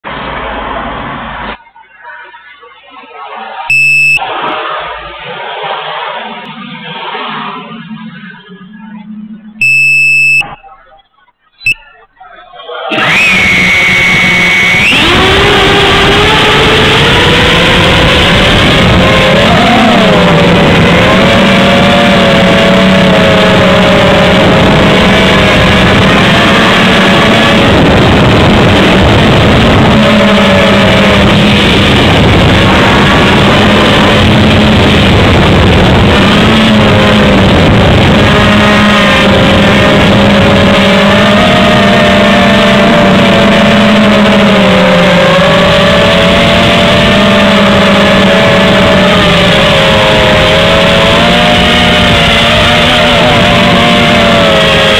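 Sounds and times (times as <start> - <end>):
quadcopter motors buzzing: 13.9 - 38.6.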